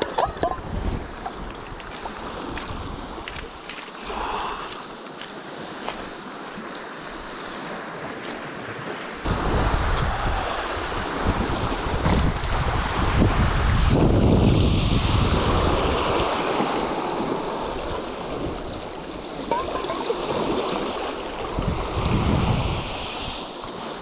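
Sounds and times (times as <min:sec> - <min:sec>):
wind buffeting microphone: 0:00.0 - 0:03.6, 0:09.2 - 0:23.4
small waves on pebbles: 0:00.0 - 0:24.0.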